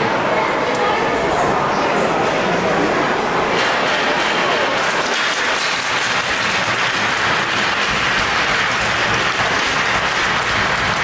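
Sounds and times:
crowd applauding: 0:04.5 - 0:11.0.

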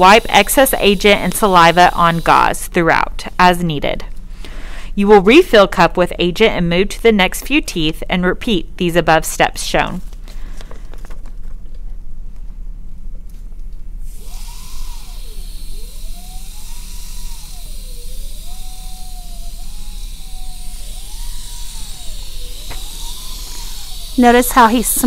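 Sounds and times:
dental handpiece whine: 0:00.0 - 0:02.6, 0:14.0 - 0:25.0
steady low hum: 0:00.0 - 0:25.0.

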